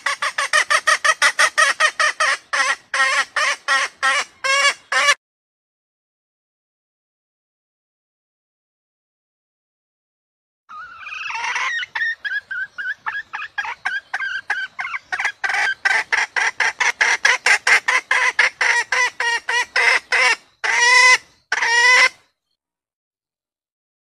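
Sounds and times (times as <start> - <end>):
hen cackling: 0.0 - 5.2, 10.7 - 22.2
hen clucking: 0.0 - 5.2, 10.7 - 22.2.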